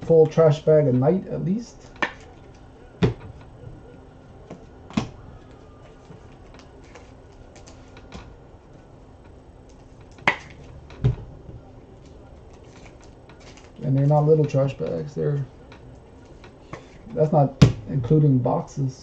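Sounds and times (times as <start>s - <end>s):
foil wrappers rustling: 5.4s - 8.2s, 11.9s - 15.5s.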